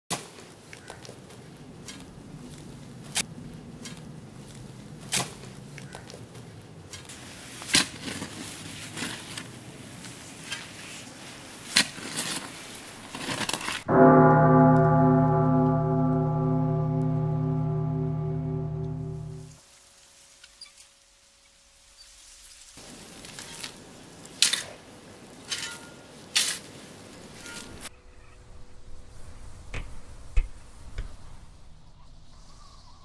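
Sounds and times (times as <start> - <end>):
loud musical drone: 13.9 - 19.5.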